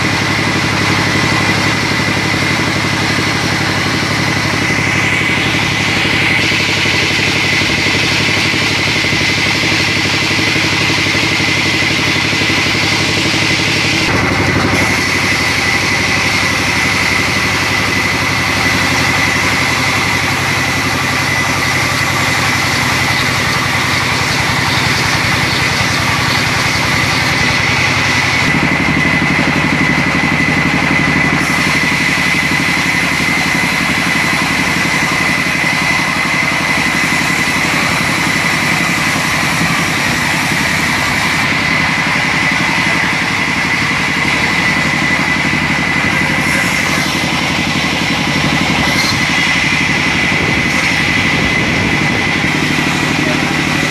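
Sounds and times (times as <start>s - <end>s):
band saw cutting log: 0.0s - 53.9s.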